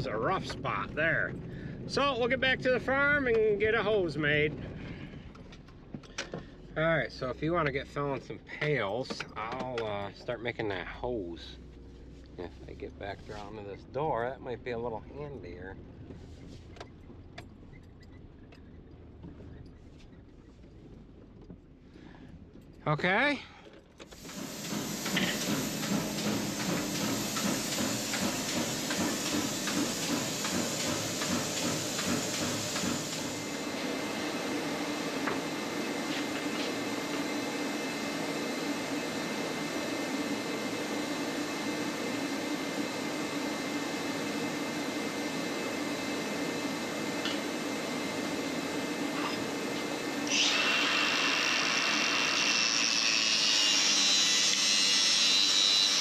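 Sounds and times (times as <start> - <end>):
machine running: 24.1 - 56.0.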